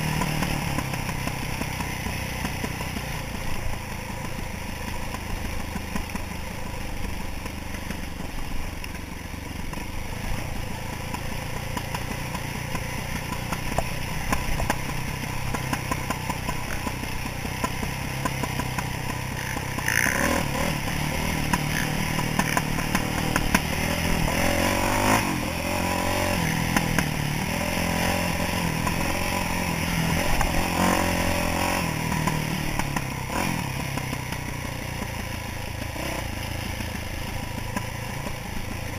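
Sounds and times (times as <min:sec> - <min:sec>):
dirt bike engine revving: 0:09.8 - 0:38.9.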